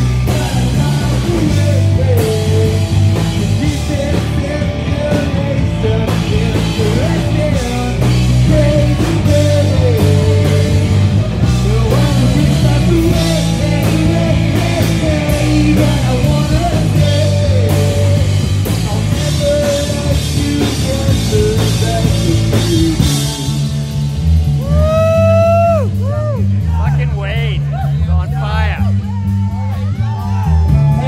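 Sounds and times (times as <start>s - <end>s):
person singing through pa: 0.0s - 23.7s
rock band playing live: 0.0s - 31.0s.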